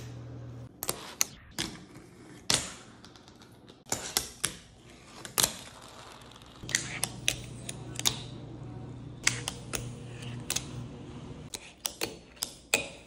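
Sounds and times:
low steady hum: 0.0s - 0.7s, 6.6s - 11.7s.

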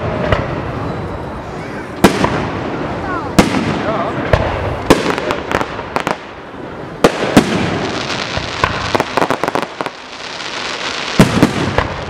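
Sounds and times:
firework bangs: 0.0s - 1.0s, 1.9s - 12.0s
firework cracks and pops: 2.0s - 2.5s, 3.3s - 6.4s, 7.0s - 12.0s.

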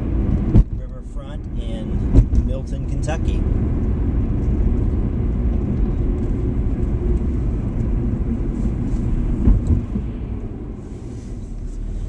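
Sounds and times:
car road and engine noise: 0.0s - 12.0s
thump: 2.1s - 2.5s.

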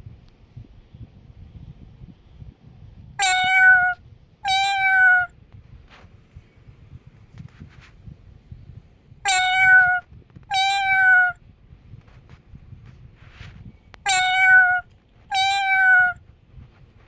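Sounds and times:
cat meowing: 3.2s - 5.4s, 9.2s - 11.4s, 14.0s - 16.2s.

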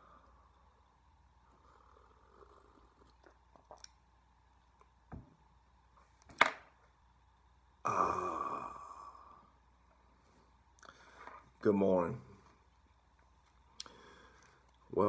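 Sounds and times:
man sighing: 7.8s - 9.4s.

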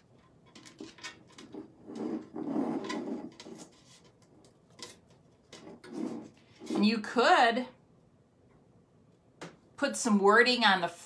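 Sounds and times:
stencil sheet rustling and rubbing: 1.3s - 7.0s.

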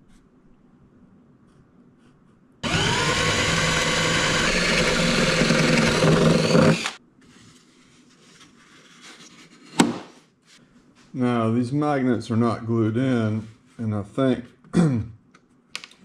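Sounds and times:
power drill boring into wood: 2.6s - 7.0s.

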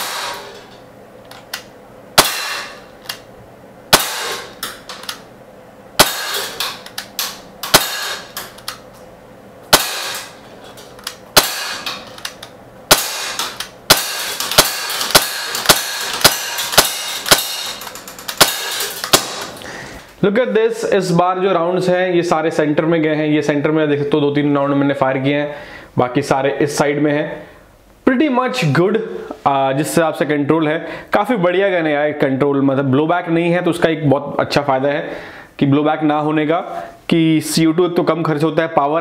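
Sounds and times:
bb pistol shots popping: 0.0s - 0.5s, 2.2s - 2.8s, 3.9s - 4.5s, 6.0s - 6.6s, 7.6s - 8.3s, 9.7s - 10.4s, 11.4s - 11.9s, 12.9s - 17.8s, 18.4s - 19.5s.

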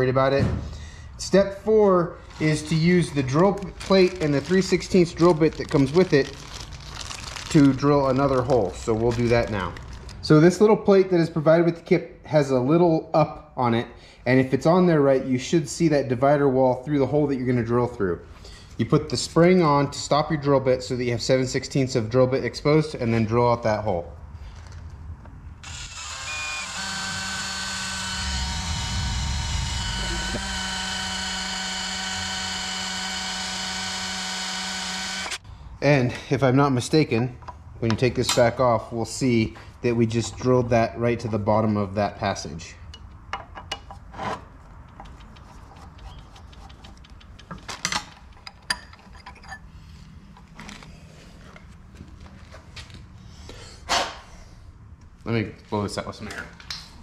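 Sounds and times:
electric drill whining: 25.6s - 35.4s.

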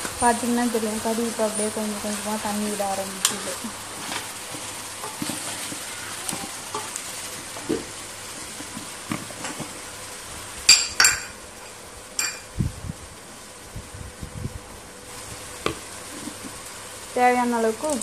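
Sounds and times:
chicken sizzling in a pot: 0.0s - 18.0s
metallic clinks against pot: 10.7s - 11.3s, 12.2s - 12.4s.

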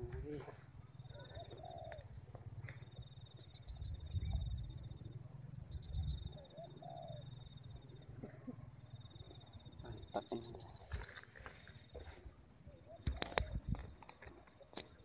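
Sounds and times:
pulsing insect trill: 0.0s - 15.0s
bird wavering low call: 0.8s - 10.8s.

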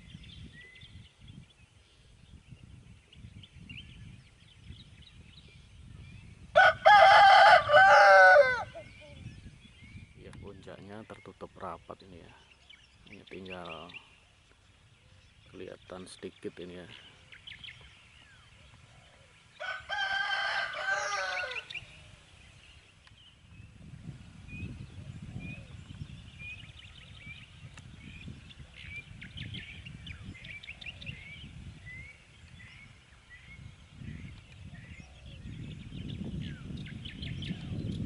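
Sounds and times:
rooster crowing: 6.6s - 8.7s, 19.6s - 21.7s
small bird chirping: 8.7s - 18.9s.

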